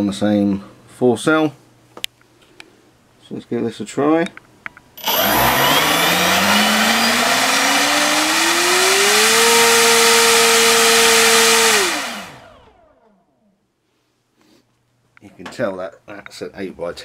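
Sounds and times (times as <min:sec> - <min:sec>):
propeller buzz: 0:05.0 - 0:12.6
electric motor whine: 0:05.0 - 0:13.2.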